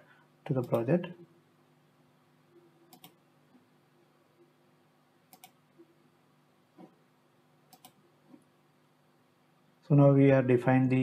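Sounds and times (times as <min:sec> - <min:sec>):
computer mouse clicks: 0:02.9 - 0:03.2, 0:05.3 - 0:05.6, 0:07.7 - 0:08.4.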